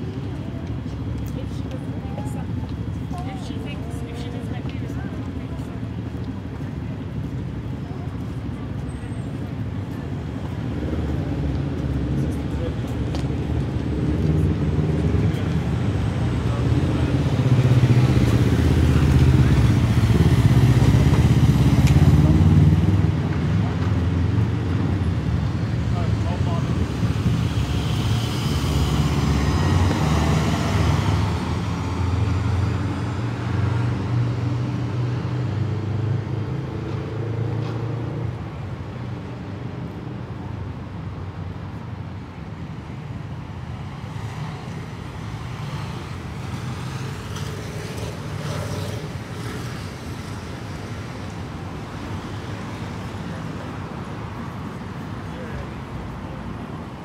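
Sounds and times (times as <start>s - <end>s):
city traffic rumble: 0.0s - 57.0s
vehicle engine driving off: 16.6s - 24.6s.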